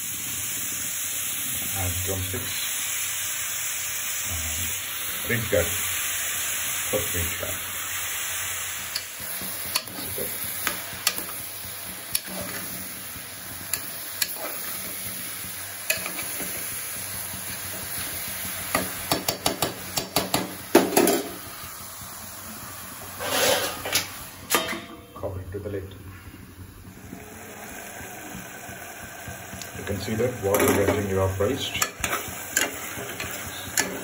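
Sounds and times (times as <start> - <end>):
vegetables sizzling in oil: 0.0 - 34.0
spoon clinking and scraping pot: 15.9 - 16.6, 23.2 - 25.0, 31.8 - 34.0.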